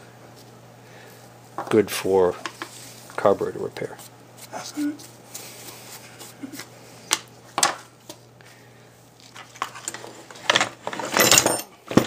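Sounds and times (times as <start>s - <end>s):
clattering and rustling: 9.2s - 12.0s.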